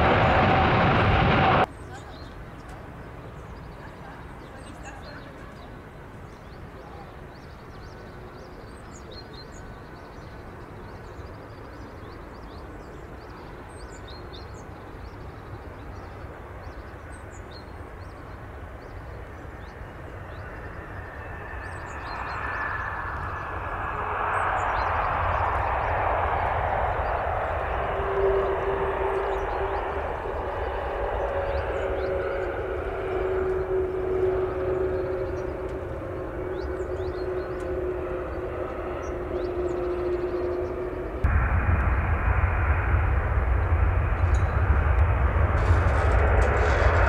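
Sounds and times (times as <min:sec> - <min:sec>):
jet engine hum: 0:00.0 - 0:01.7, 0:14.7 - 0:47.0
reverse thrust engine roar: 0:00.0 - 0:01.7, 0:19.1 - 0:47.0.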